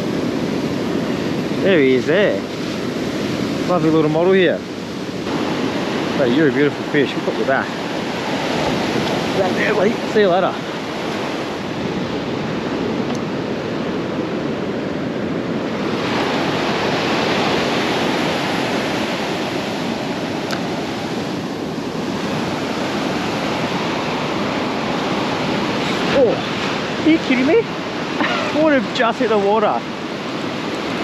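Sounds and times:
ocean surf breaking: 0:00.0 - 0:31.0.

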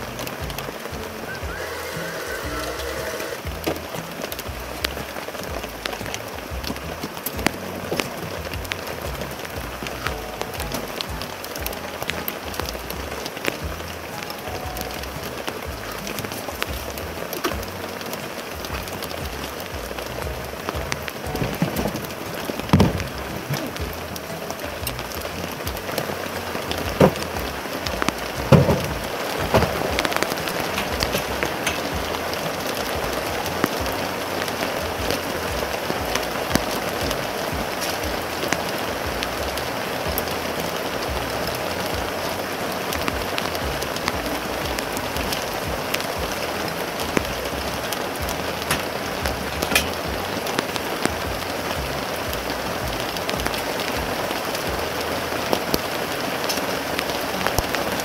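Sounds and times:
heavy rain falling: 0:00.0 - 0:58.0
camping gear knocks: 0:21.3 - 0:23.8, 0:26.9 - 0:27.3, 0:28.0 - 0:31.8.

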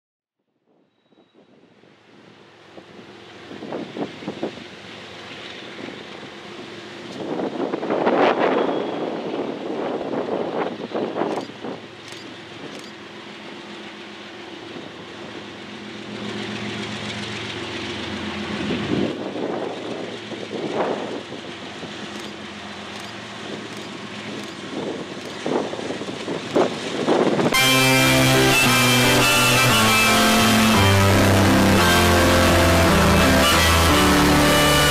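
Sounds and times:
diesel locomotive engine drone: 0:00.9 - 0:34.9
rail noise: 0:00.9 - 0:34.9
guitar music: 0:27.5 - 0:34.9.

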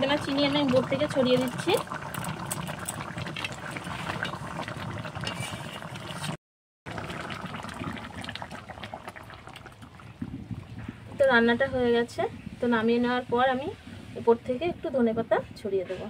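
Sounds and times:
gravy boiling with pops: 0:00.0 - 0:11.7.

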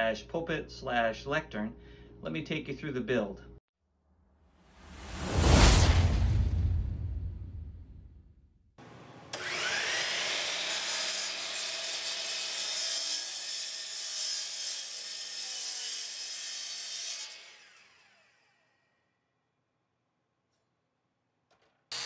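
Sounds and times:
miter saw cutting wood: 0:09.3 - 0:18.8.

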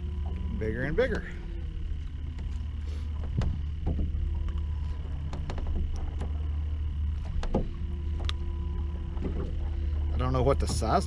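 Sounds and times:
steady low rumble: 0:00.0 - 0:11.0
clicks and knocks of fish handling: 0:03.2 - 0:06.6, 0:07.2 - 0:09.7.

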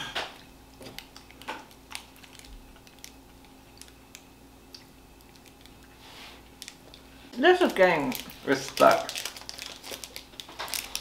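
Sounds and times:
candy wrapper crinkling: 0:00.8 - 0:04.3, 0:06.5 - 0:11.0.

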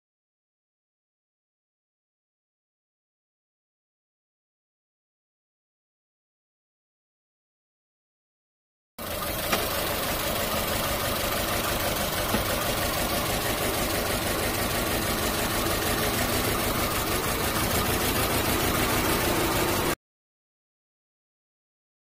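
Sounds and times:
car engine misfiring: 0:09.0 - 0:20.0.

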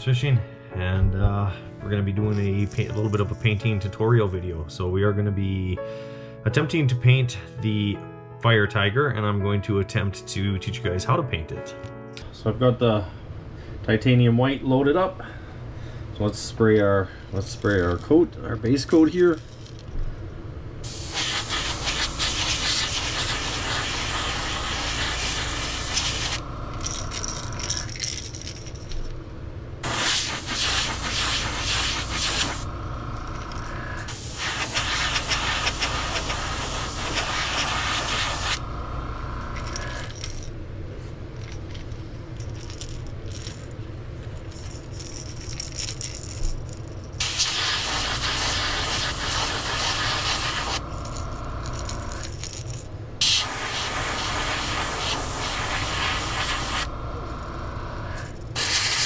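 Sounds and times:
steady low hum: 0:12.2 - 0:59.0
airbrush hissing: 0:20.8 - 0:26.4, 0:29.8 - 0:32.7, 0:33.9 - 0:38.6, 0:47.2 - 0:50.8, 0:53.2 - 0:56.9, 0:58.6 - 0:59.0.

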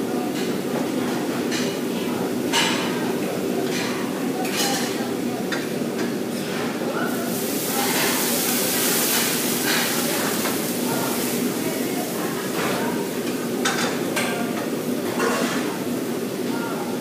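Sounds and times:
gas flame flaring: 0:07.1 - 0:12.3
food sizzling in a wok: 0:07.1 - 0:17.0.

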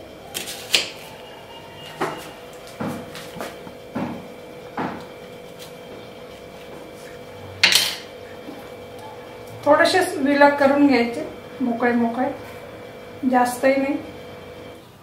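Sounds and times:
knife knocking wooden board: 0:04.0 - 0:04.2.

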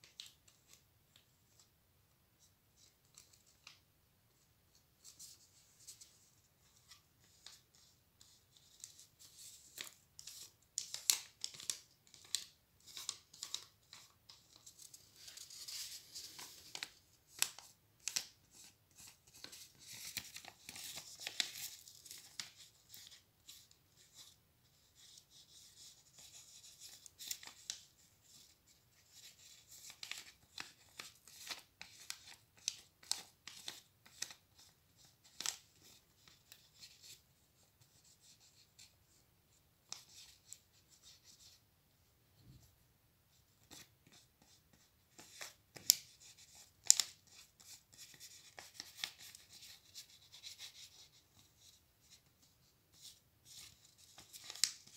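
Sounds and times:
paper card rustling and crackling: 0:05.0 - 0:37.2, 0:43.5 - 0:54.9.

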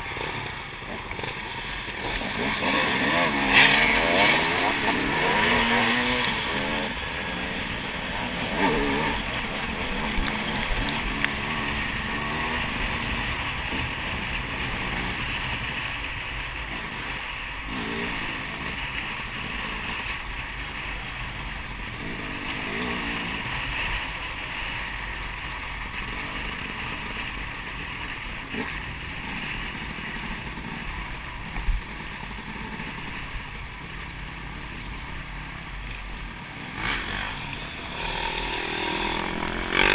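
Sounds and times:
dirt bike engine revving: 0:00.0 - 0:34.8, 0:36.3 - 0:39.9
steady rushing noise: 0:00.0 - 0:39.9.

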